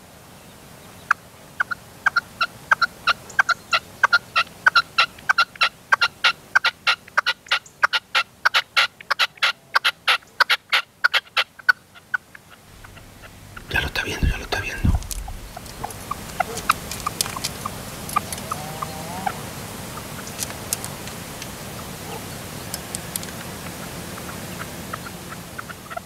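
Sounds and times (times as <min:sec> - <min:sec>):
partridge calling sharp notes: 0:12.5 - 0:20.7.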